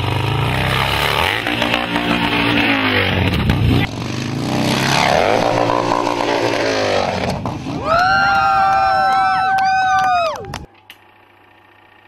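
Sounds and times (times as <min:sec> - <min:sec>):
motorcycle engine revving: 0:00.0 - 0:08.2.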